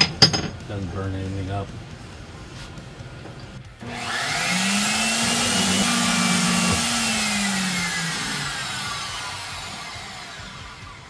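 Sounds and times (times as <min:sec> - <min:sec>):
bandsaw motor hum: 0:03.8 - 0:11.0.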